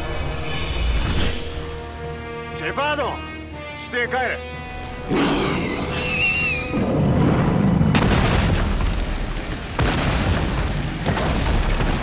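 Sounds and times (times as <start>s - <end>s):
explosions rumbling: 6.7s - 12.0s.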